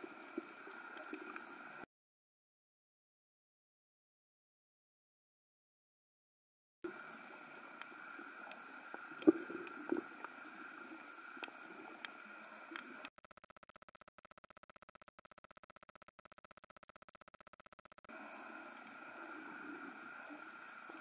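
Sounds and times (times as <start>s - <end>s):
faint underwater hiss: 0.0s - 1.8s, 6.9s - 13.1s, 18.1s - 21.0s
sharp clicks and crackles: 0.0s - 1.8s, 6.9s - 19.3s.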